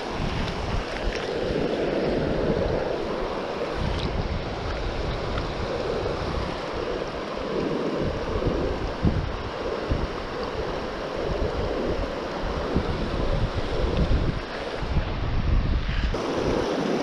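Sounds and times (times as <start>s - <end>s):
wind rumbling on microphone: 0.0s - 17.0s
creek water rushing over rocks: 16.1s - 17.0s.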